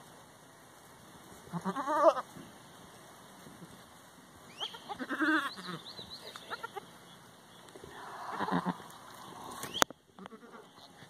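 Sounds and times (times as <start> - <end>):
goats bleating: 1.5 - 2.3, 4.6 - 6.9, 7.9 - 9.6, 10.2 - 11.0.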